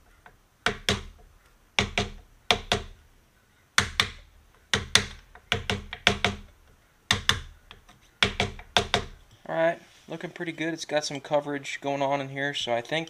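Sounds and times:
mallet tapping wooden dowel: 0:00.2 - 0:03.0, 0:03.8 - 0:09.2.

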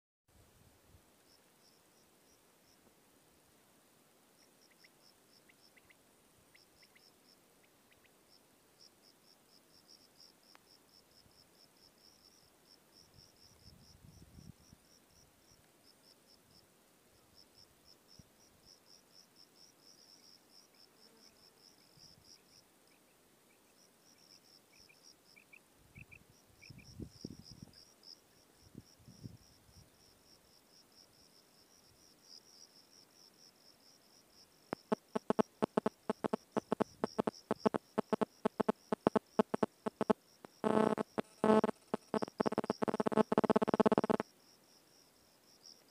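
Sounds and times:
insect chirping: 0:23.7 - 0:45.9.

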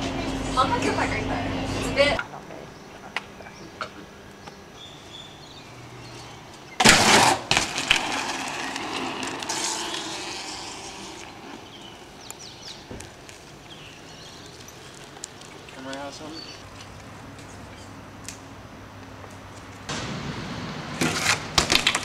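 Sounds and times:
tyres rolling over pavement: 0:05.9 - 0:17.2, 0:19.9 - 0:22.0
bike scraping concrete ledge: 0:06.8 - 0:15.2, 0:21.0 - 0:22.0.

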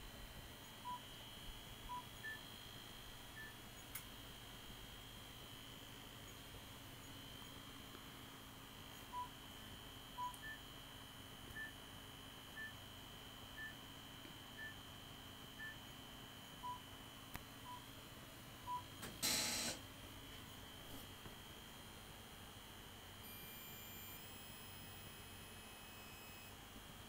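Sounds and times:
short electronic beeps: 0:23.3 - 0:26.5.

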